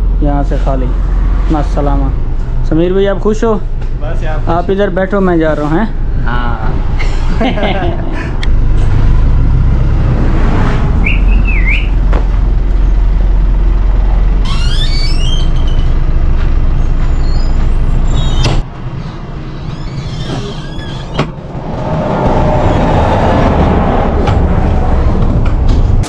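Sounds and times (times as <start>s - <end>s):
heavy truck rumbling: 0.0s - 26.0s
high brake squeals: 14.4s - 16.0s, 16.8s - 21.2s.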